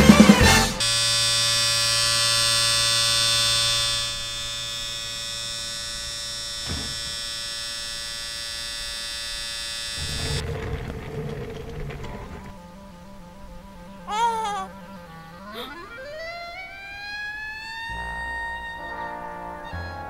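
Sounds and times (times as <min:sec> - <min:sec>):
electric hair clippers buzzing: 0:00.8 - 0:10.4.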